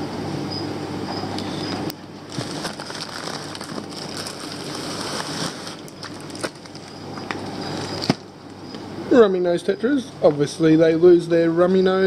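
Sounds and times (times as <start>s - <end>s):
plastic bags crinkling: 2.3s - 8.3s.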